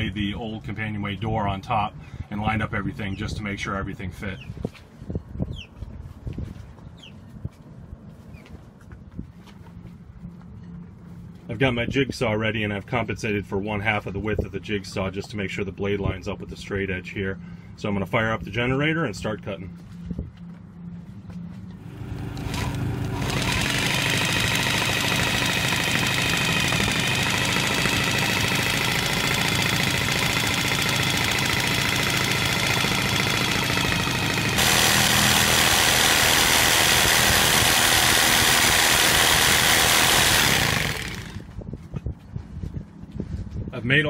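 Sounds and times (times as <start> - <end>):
generator humming: 16.2 - 41.6
jigsaw cutting plastic board: 22.4 - 41.4.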